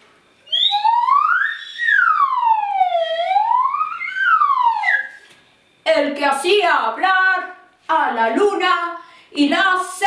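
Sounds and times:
slide whistle gliding tone: 0.4 - 5.3.

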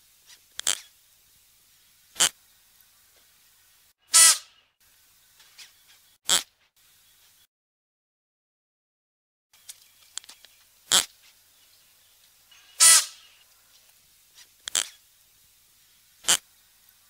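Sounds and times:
antelope short sharp calls: 4.1 - 4.6, 12.6 - 13.4.

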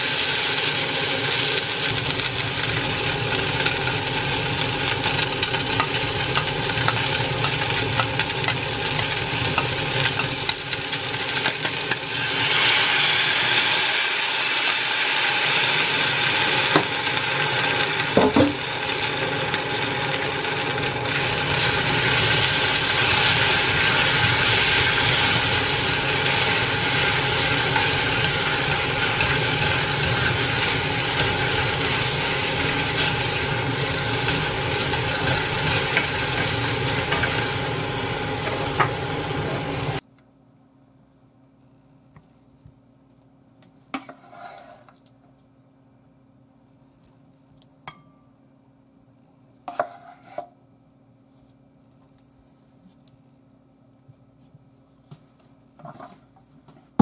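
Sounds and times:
food sizzling in a saucepan: 0.0 - 40.0, 44.0 - 44.9
chopsticks stirring in pan: 2.2 - 12.1, 21.6 - 40.0, 44.0 - 45.0, 49.7 - 50.4.

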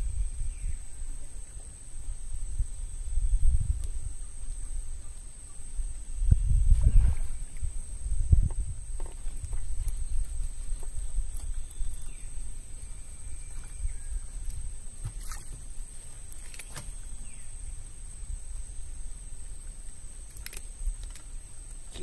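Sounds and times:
wind buffeting microphone: 0.0 - 16.4.

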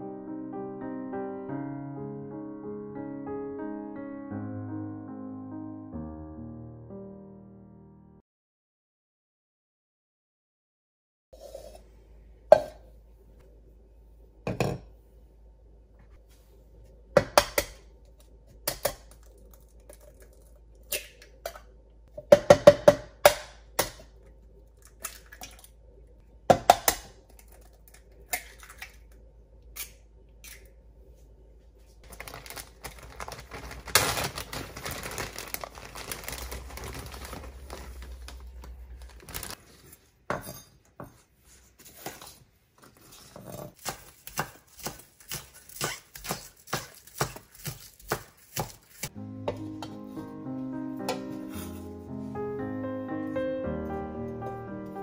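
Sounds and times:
rustling: 31.2 - 40.2.

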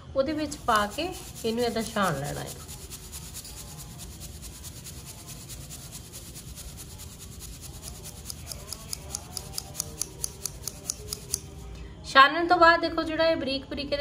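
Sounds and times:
flakes rustling in mesh strainer: 0.5 - 8.3.

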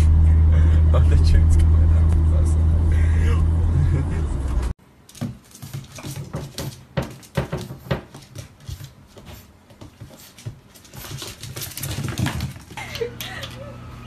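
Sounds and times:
steady hum: 0.0 - 4.7
paws scuffling on tile floor: 5.1 - 13.6.

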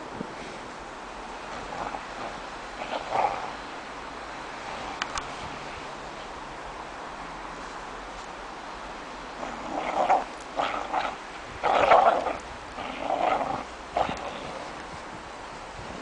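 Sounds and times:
dog growling: 1.6 - 3.6, 9.4 - 14.8.

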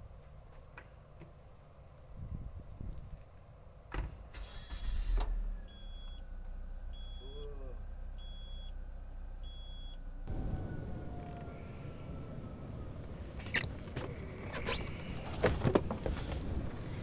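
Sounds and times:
thump: 3.9 - 4.2
car engine starting and idling: 4.2 - 17.0
dashboard warning chime beeping: 5.6 - 6.2, 6.9 - 8.8, 9.4 - 11.4.

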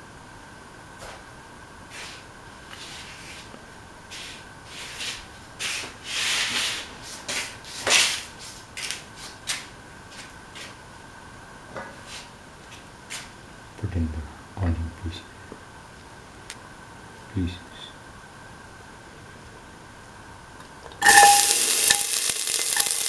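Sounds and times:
metal pan scraping: 21.0 - 23.0.

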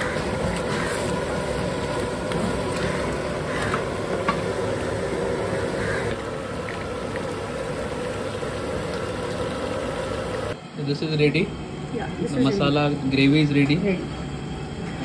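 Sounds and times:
gravy bubbling and sizzling: 0.0 - 10.6
gas burner roar: 0.0 - 15.0.

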